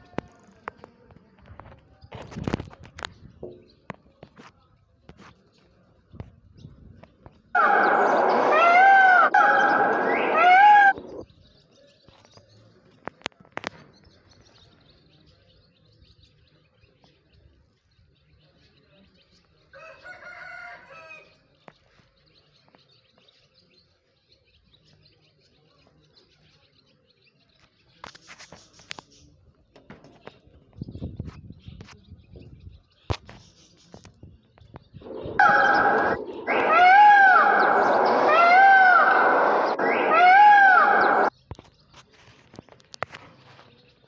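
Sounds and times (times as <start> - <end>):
peacock honking call: 7.6 - 11.2, 35.0 - 41.3.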